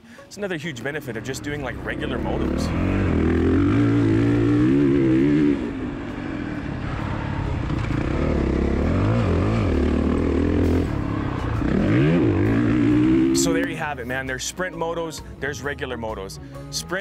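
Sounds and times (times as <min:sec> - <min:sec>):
dirt bike engine revving: 0:01.6 - 0:13.7.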